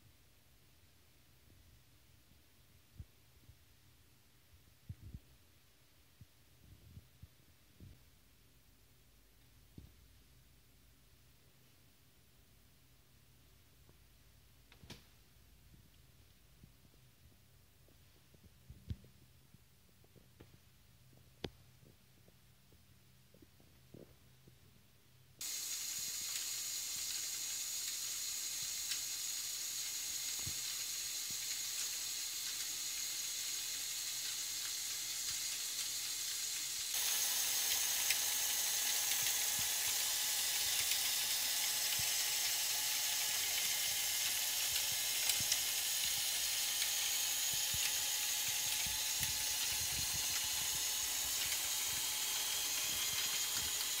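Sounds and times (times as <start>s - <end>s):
electric motor whirring: 25.4s - 54.0s.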